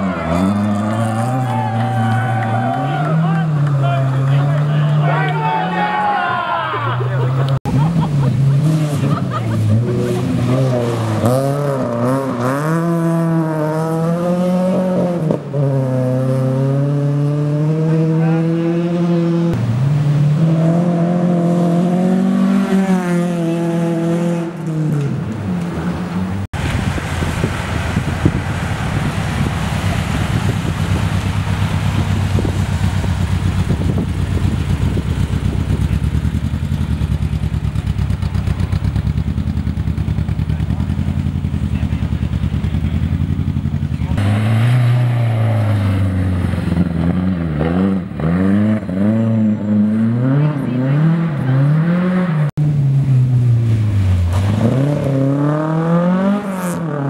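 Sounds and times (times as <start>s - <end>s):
rally car engine revving: 0.0s - 5.8s, 7.2s - 57.0s
engine running evenly: 27.2s - 44.2s.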